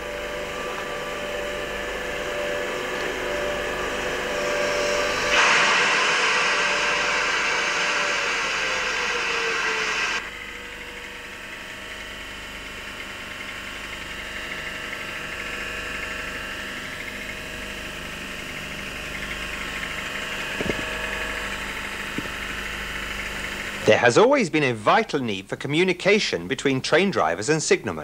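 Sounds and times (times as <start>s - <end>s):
train engine idling: 0.0s - 16.0s, 16.8s - 23.9s
loud rushing noise: 3.1s - 10.3s.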